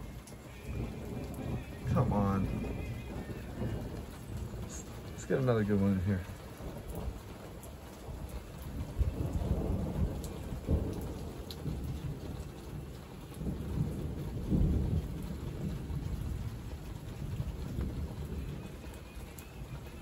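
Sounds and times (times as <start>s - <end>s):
heavy rain pattering: 0.0s - 20.0s
thunder rumbling: 0.0s - 20.0s.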